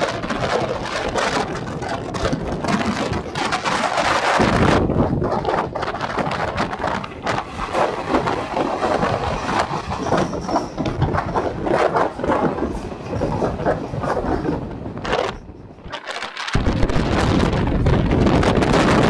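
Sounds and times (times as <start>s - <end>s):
steady rushing noise: 0.0s - 19.0s
train wheels clattering on rails: 0.0s - 19.0s.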